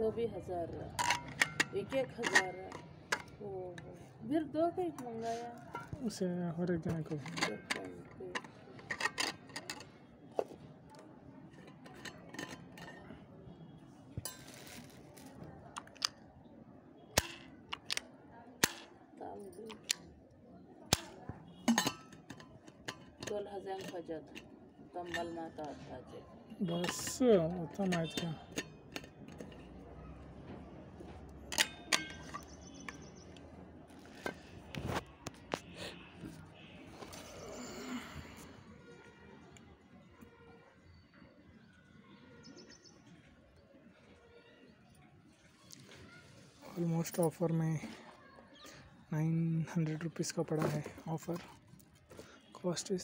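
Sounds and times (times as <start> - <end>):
flask lid screwed on: 7.0 - 9.9, 21.6 - 24.5
flask clinks and taps: 21.7 - 22.4.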